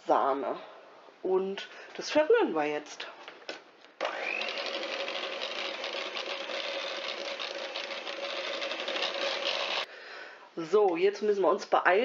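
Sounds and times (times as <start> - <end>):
electric hand mixer whisking: 4.0 - 9.9.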